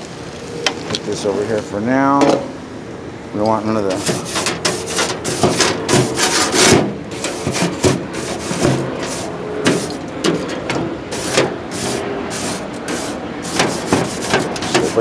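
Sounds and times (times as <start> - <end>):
brush scraping grill grates: 3.5 - 15.0.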